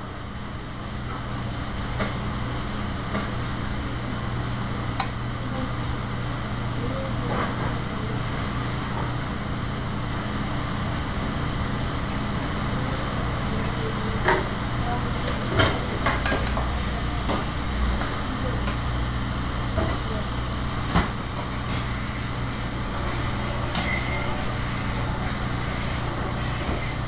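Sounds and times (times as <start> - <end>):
exhaust hood fan drone: 0.0 - 27.0.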